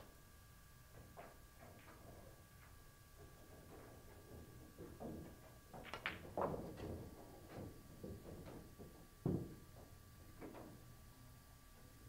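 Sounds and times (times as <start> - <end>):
billiard balls knocking together: 4.8 - 7.0.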